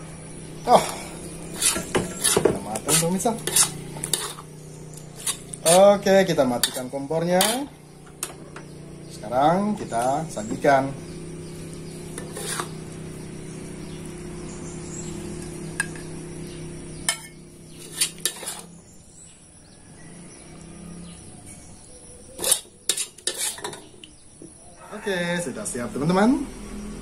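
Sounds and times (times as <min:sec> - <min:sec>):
low hum: 0:00.0 - 0:22.0
metal spatula scraping wok: 0:01.4 - 0:08.4, 0:12.1 - 0:12.9, 0:17.1 - 0:18.8, 0:22.4 - 0:24.0.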